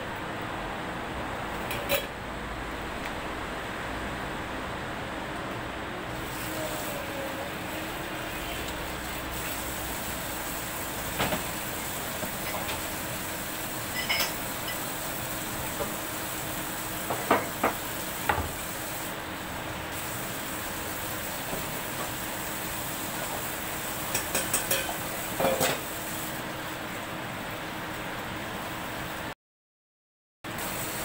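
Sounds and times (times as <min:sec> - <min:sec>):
dishes and utensils clinking: 0:01.7 - 0:02.1, 0:13.9 - 0:14.8, 0:24.1 - 0:25.8.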